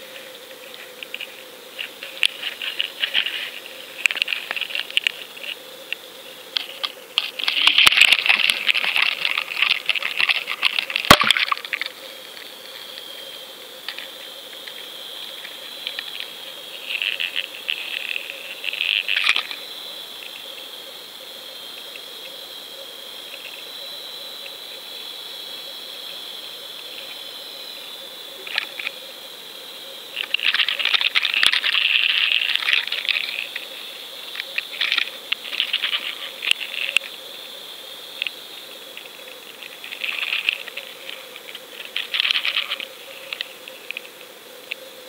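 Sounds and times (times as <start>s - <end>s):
steady high underwater whine: 0.0s - 45.0s
underwater crackling and clicking: 1.0s - 19.6s, 28.4s - 28.9s, 30.2s - 33.7s, 34.3s - 37.1s, 39.0s - 44.8s.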